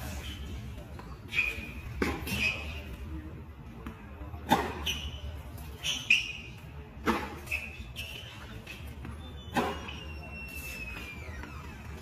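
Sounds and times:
tennis balls struck by rackets: 0.0s - 2.6s, 3.7s - 5.7s, 6.3s - 10.0s.

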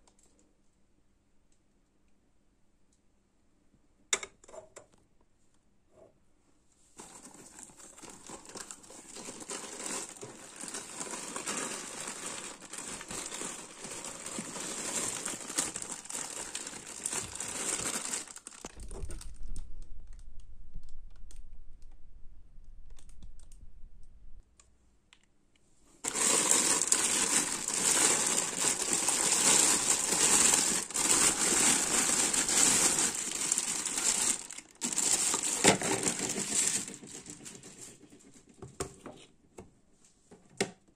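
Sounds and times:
cardboard box crinkling: 7.0s - 19.4s, 26.0s - 38.1s
plastic bag crinkling: 7.0s - 20.4s, 26.0s - 38.1s
low rumble: 18.7s - 24.5s.

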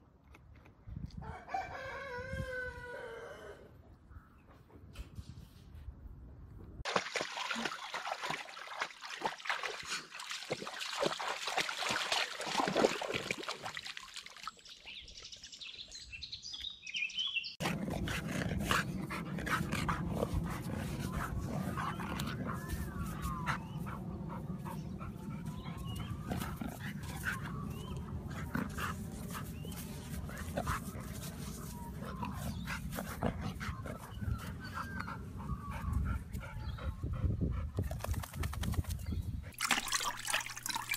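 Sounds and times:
dog splashing through water: 6.8s - 15.0s, 39.5s - 40.9s
dog scrabbling in dirt: 37.9s - 39.0s.

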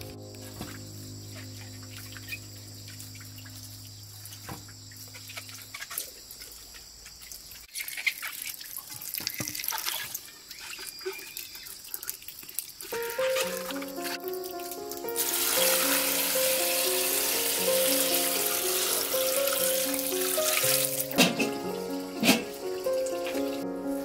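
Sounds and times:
soft background music: 0.0s - 5.6s, 13.0s - 24.0s.

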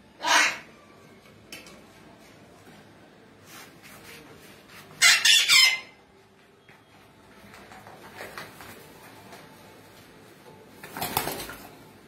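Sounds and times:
macaw squawking: 0.2s - 0.7s, 5.0s - 6.0s.

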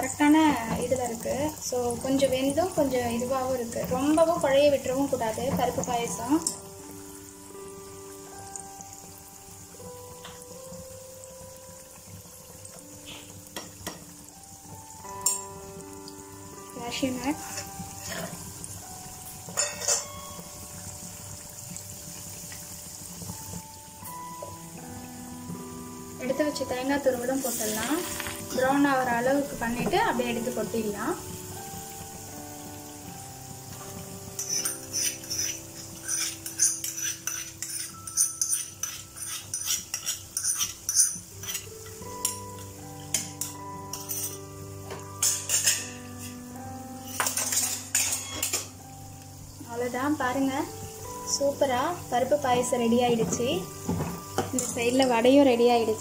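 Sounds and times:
ghee sizzling: 0.0s - 56.0s
spoon scraping metal pot: 34.4s - 41.7s, 43.4s - 44.4s, 47.1s - 48.7s.

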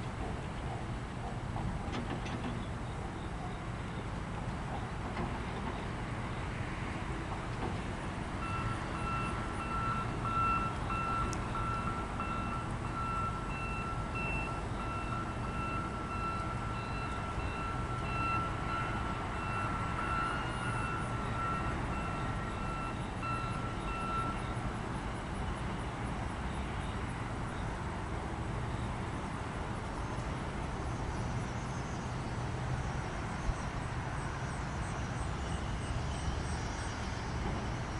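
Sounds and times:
train rumble: 0.0s - 37.9s
high-pitched electronic warning beep: 8.4s - 24.6s.

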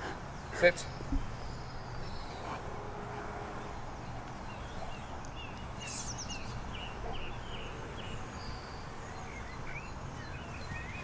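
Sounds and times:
songbirds chirping: 0.0s - 11.0s.

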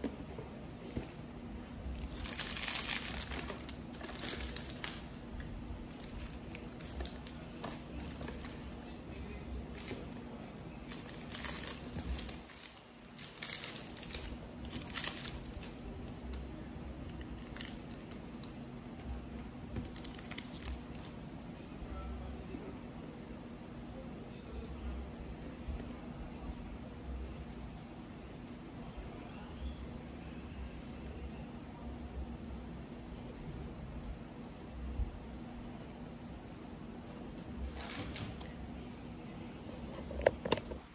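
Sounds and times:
plastic wrapping crinkling: 1.9s - 8.8s, 9.7s - 10.2s, 10.8s - 18.6s, 19.8s - 21.1s.

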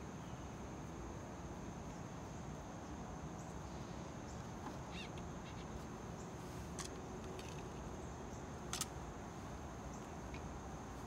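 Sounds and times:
bird chirp: 2.8s - 6.5s.

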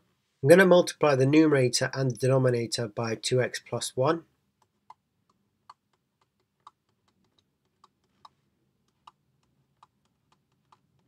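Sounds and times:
stylus tapping tablet screen: 4.6s - 11.0s.

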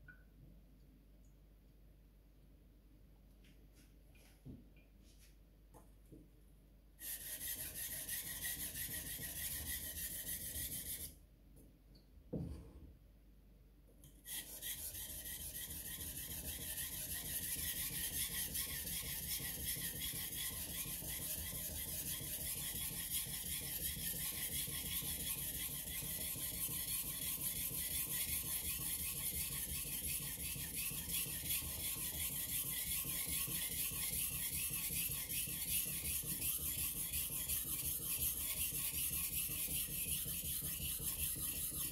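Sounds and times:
knife sharpened on a waterstone: 7.0s - 11.1s.

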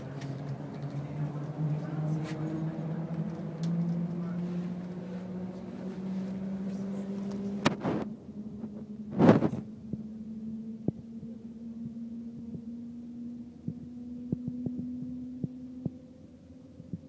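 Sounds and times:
train hum inside cabin: 0.0s - 17.0s.

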